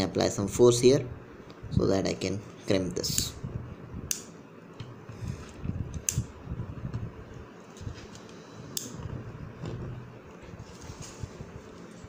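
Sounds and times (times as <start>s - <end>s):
handling and rubbing noise: 9.0s - 12.0s.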